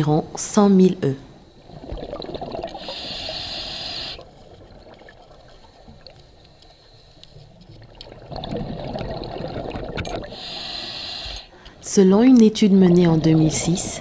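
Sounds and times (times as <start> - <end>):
underwater water noise: 1.2 - 12.4
exhaled bubbles rumbling: 1.4 - 6.7, 7.4 - 10.6
scuba regulator inhale hiss: 2.7 - 4.4, 10.2 - 11.8.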